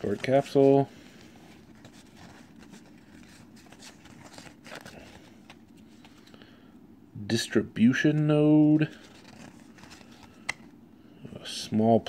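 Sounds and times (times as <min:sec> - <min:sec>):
trading cards rustling: 0:00.0 - 0:06.4, 0:07.9 - 0:10.7
low steady background noise: 0:00.0 - 0:12.0.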